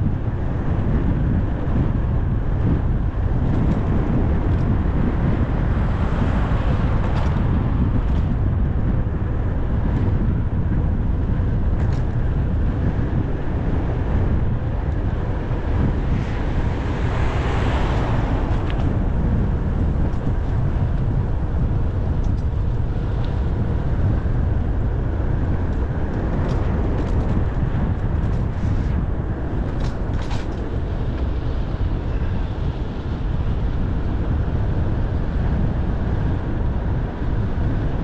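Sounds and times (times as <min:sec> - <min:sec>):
wind buffeting microphone: 0:00.0 - 0:38.0
car passing: 0:05.6 - 0:08.0, 0:15.4 - 0:21.8.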